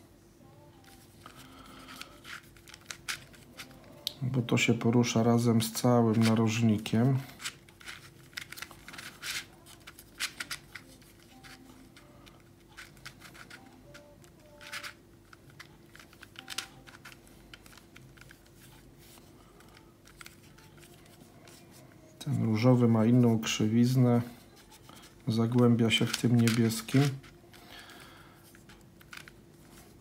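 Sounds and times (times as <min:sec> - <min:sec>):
faint steady hum: 0:00.0 - 0:30.0
puzzle pieces clicking and rattling: 0:12.6 - 0:18.4, 0:25.5 - 0:28.0.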